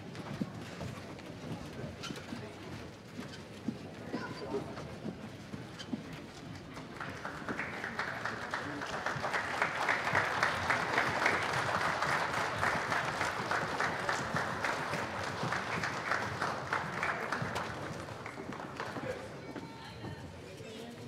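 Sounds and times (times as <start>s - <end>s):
audience applauding: 6.8s - 19.4s.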